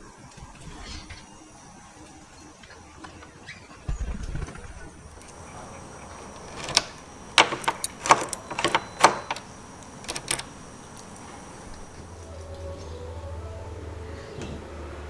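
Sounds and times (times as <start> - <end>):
key turning in lock: 6.4 - 10.5.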